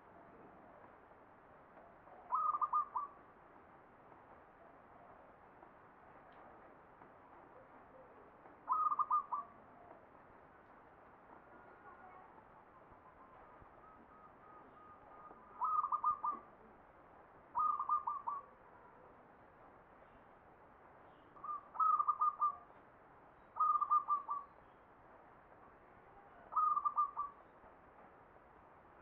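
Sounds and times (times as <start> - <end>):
dove cooing: 2.3 - 3.2, 8.7 - 9.9, 14.4 - 16.5, 17.6 - 18.5, 21.4 - 22.6, 23.6 - 24.5, 26.5 - 27.4.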